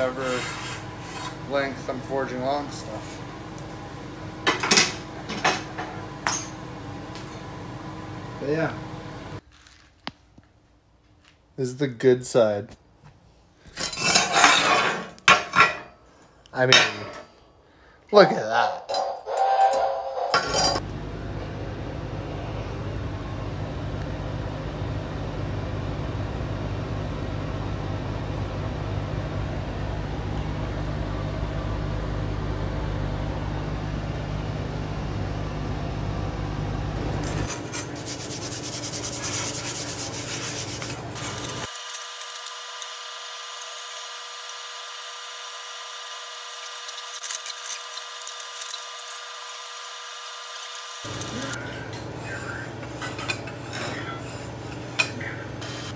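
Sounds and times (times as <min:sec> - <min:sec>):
exhaust fan humming and rushing: 0:00.0 - 0:09.4, 0:20.8 - 0:55.9
metal tools scraping and rasping: 0:13.8 - 0:15.9, 0:46.4 - 0:49.2, 0:52.8 - 0:55.9.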